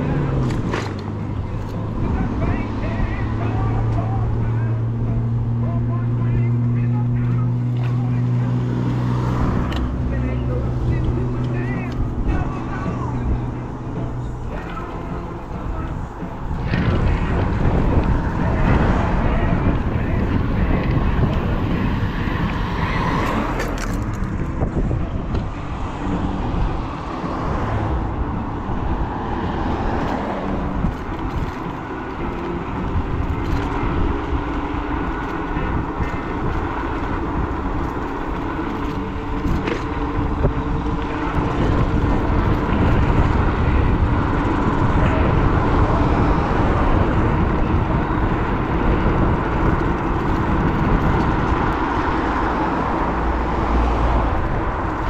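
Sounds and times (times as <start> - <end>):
road and wind noise: 0.0 - 55.0.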